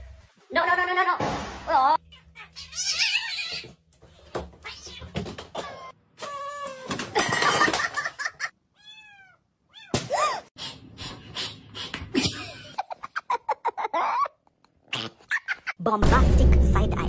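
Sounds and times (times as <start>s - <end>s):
cat meowing: 8.8s - 10.0s.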